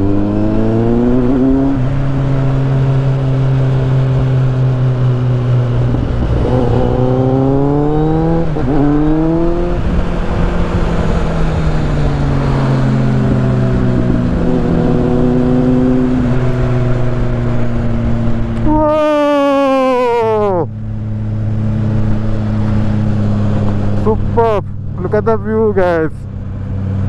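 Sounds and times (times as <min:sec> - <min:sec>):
motorcycle engine accelerating: 0:00.0 - 0:27.0
wind rush: 0:00.4 - 0:19.2.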